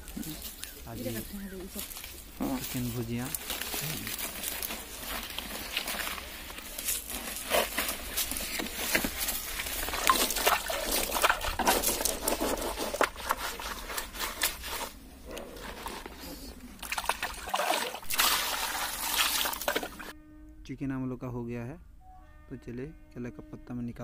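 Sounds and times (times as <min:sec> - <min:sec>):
stiff leaf crackling and rustling: 0:00.0 - 0:16.7
water splashing and trickling: 0:01.7 - 0:14.9, 0:16.8 - 0:20.1.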